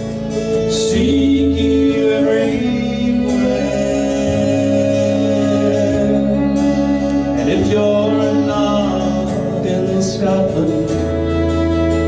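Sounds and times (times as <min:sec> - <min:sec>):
folk instrumental accompaniment: 0:00.0 - 0:12.0
man singing: 0:00.5 - 0:12.0.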